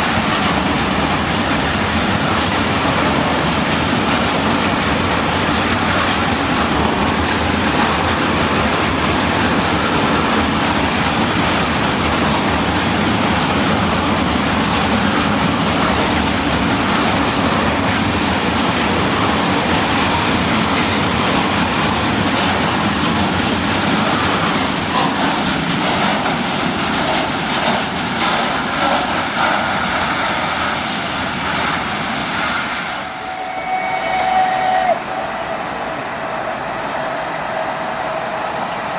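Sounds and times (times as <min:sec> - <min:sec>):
train wheels rumbling on rails: 0:00.0 - 0:38.9
short steady tone: 0:33.2 - 0:36.5.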